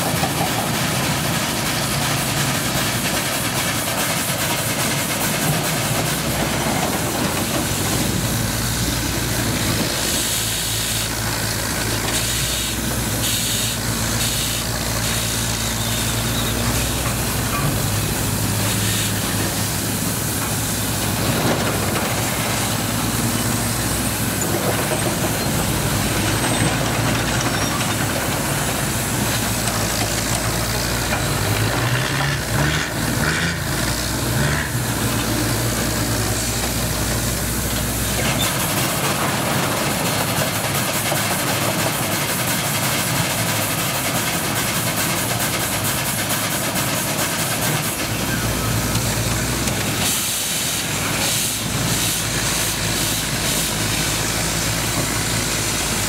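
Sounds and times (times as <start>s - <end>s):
steam engines hissing: 0.0s - 56.0s.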